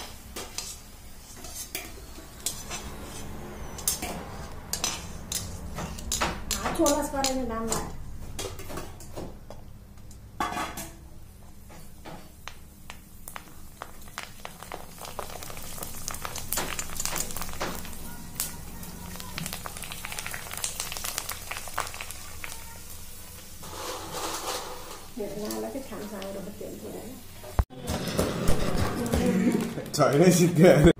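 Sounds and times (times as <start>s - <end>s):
dough sizzling in hot oil: 11.4s - 27.7s.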